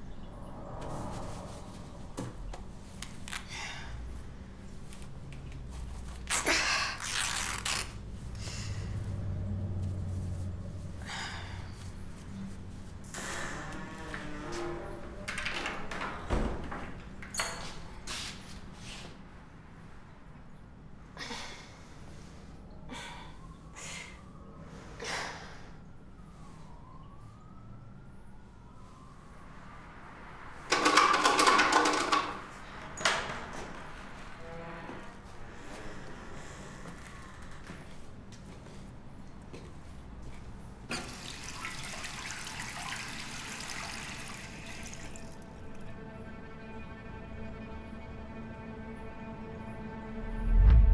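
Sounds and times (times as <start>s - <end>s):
woman breathing heavily: 3.4s - 4.7s, 8.3s - 9.4s, 10.9s - 12.2s, 21.2s - 25.9s
faint siren wailing: 8.2s - 15.4s, 22.1s - 31.0s
water rushing through plumbing: 40.9s - 45.5s.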